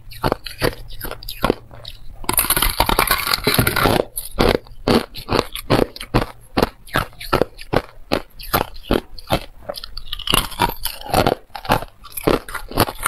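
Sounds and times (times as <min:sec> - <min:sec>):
chewing crunches: 0:00.0 - 0:13.0
ice crunching between teeth: 0:00.1 - 0:13.0
ice crackling: 0:02.3 - 0:05.4.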